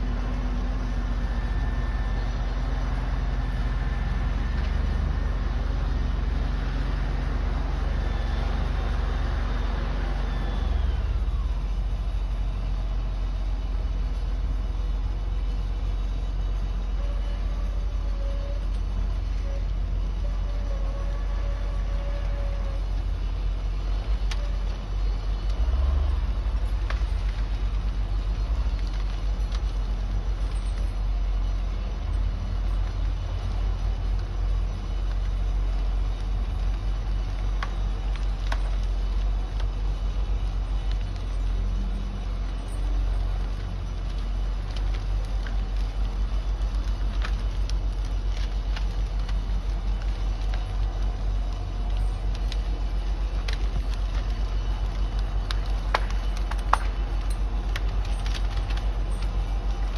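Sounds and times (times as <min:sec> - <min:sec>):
diesel engine rumbling: 0:00.0 - 0:59.9.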